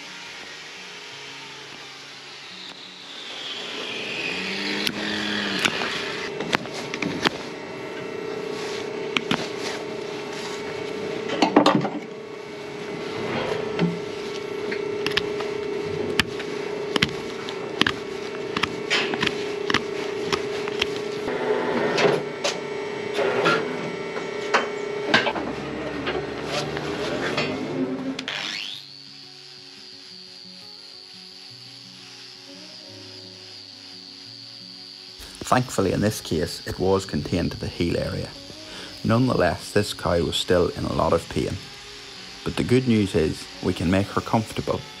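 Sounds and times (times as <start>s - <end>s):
steady machine hum: 0.0s - 45.0s
hoof knife scraping horn: 2.6s - 7.6s, 12.9s - 22.0s.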